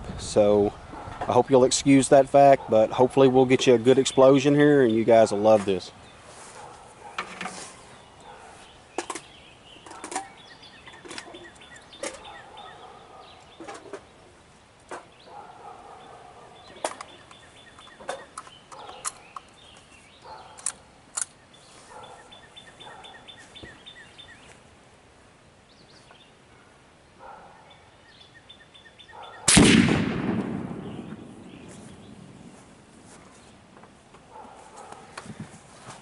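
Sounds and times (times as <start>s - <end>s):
birds short sharp calls: 3.9s - 14.3s, 14.9s - 24.6s, 25.8s - 29.9s, 30.7s - 33.6s.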